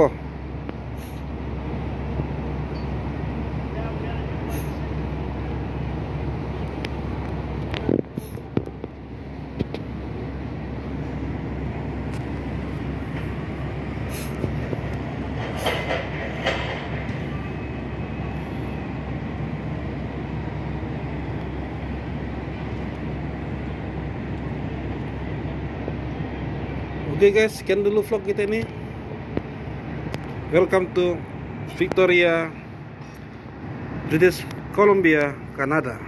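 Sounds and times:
low mechanical rumble of ship machinery: 0.0 - 36.0.

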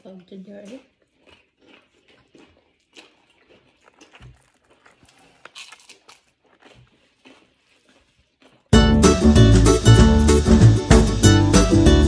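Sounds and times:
tortilla chips crunching: 0.7 - 8.7.

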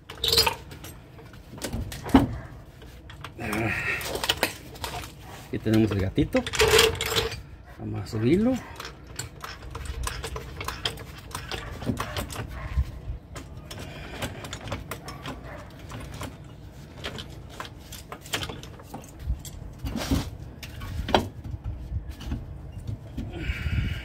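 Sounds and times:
metal clicks and knocks: 5.7 - 7.4, 8.6 - 12.7.

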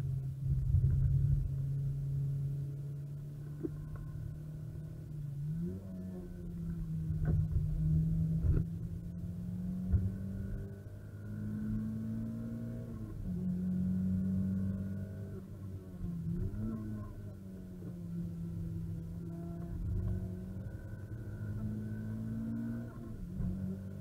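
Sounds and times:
car engine heard from cabin: 0.0 - 24.0.

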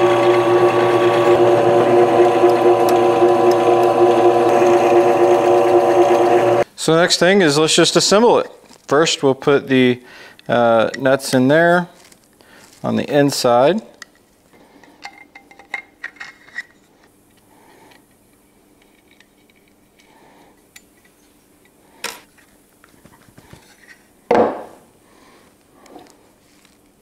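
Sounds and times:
loud knock on workbench: 24.3 - 24.8.

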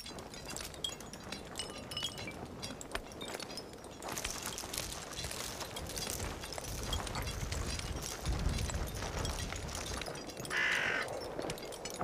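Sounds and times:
crow cawing: 10.5 - 11.1.

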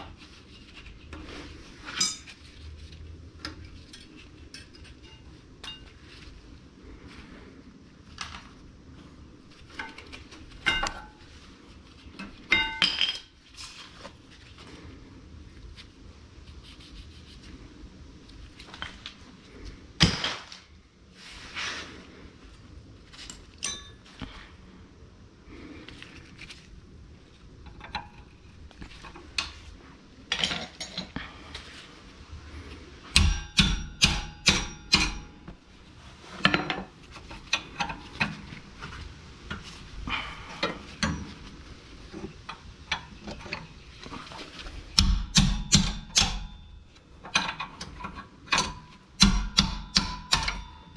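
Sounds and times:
metal tools clinking on metal: 1.8 - 2.4, 23.2 - 24.2, 30.3 - 31.2.

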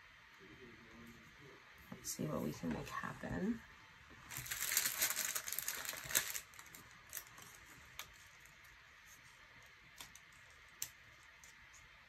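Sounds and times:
sticker sheet crinkling: 4.3 - 11.9.

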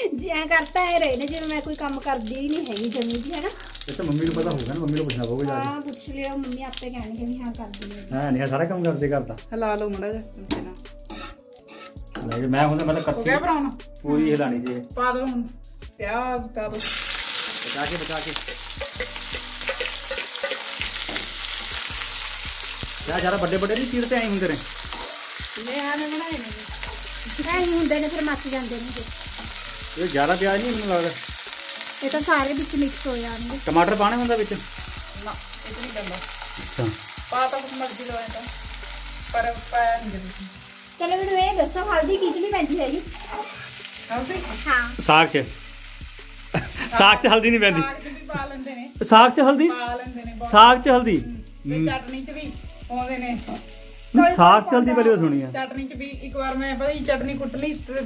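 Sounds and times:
onions sizzling in hot oil: 0.0 - 15.5, 16.7 - 58.0
spatula stirring in pan: 10.4 - 13.3, 16.8 - 31.9, 42.2 - 44.7.

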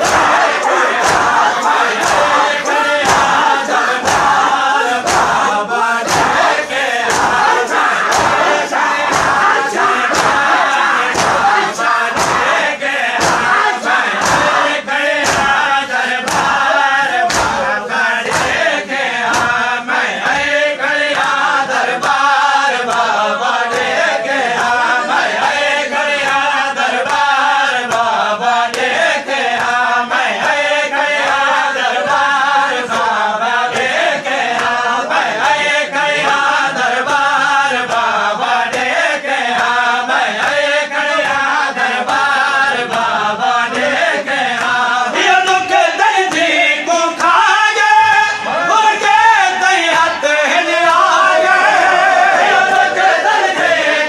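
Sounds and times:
hands striking chests: 0.0 - 5.5, 6.1 - 12.6, 13.2 - 14.6, 15.2 - 16.6, 17.2 - 17.7
crowd of men chanting: 0.0 - 54.0
men singing a lament: 0.0 - 54.0.

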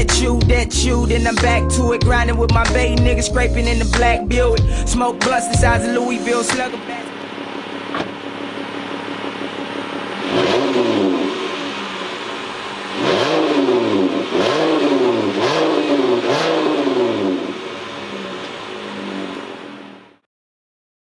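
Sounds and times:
car engine idling: 0.0 - 20.2
car engine revving: 0.0 - 20.2.

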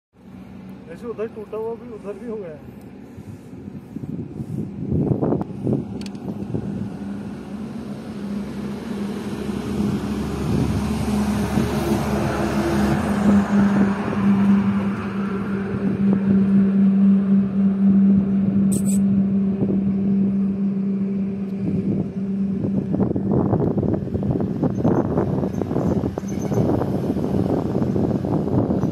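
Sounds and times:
vehicle engine hum: 0.1 - 28.9
tyre and wind noise: 3.5 - 6.9, 22.7 - 28.9.

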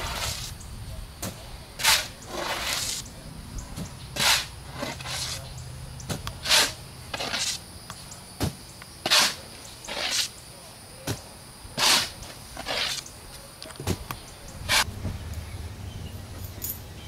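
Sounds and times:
shovel scraping sandy soil: 0.0 - 0.6, 1.2 - 3.1, 3.8 - 5.5, 6.1 - 7.7, 8.4 - 10.4, 11.8 - 13.1, 14.7 - 14.9.

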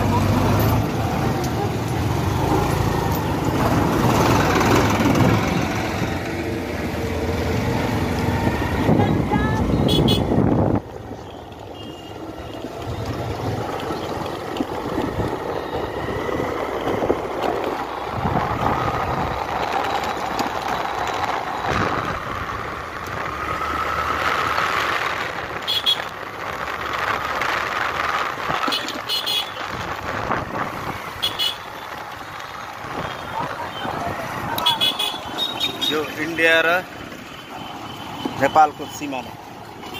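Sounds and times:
motorcycle engine: 0.0 - 38.4
vehicle horn toots: 9.7 - 10.4, 11.3 - 12.2, 25.7 - 26.1, 28.7 - 29.6, 34.6 - 36.0.

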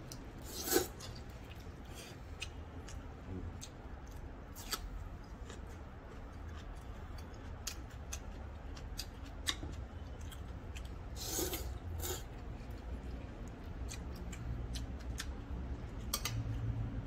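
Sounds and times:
slurping noodles: 0.4 - 1.0, 11.2 - 12.3.

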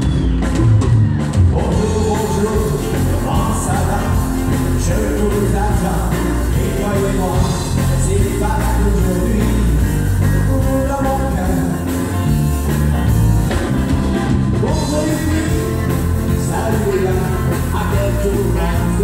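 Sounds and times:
electric bass: 0.0 - 19.0
electric guitar: 0.0 - 19.0
man singing into microphone: 1.5 - 12.0, 14.6 - 19.0.

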